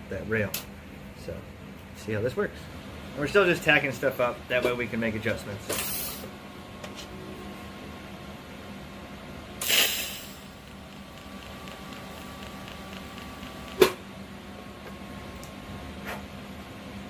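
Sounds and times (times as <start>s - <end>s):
sharp click: 9.6s - 14.0s
welding arc hissing crackle: 9.6s - 14.1s
welding machine hum: 9.6s - 14.8s
faint regular ticking: 10.3s - 14.0s.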